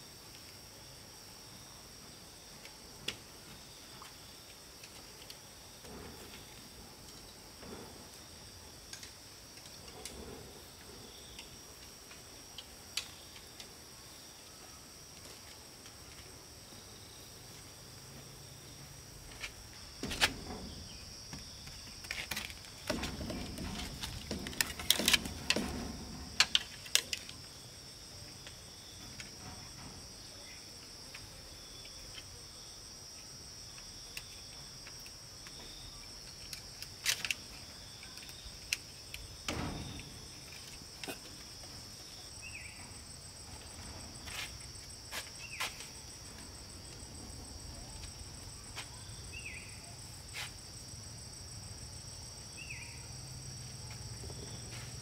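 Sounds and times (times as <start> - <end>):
crickets chirping: 0.0 - 55.0
bamboo poles knocking together: 19.4 - 27.4.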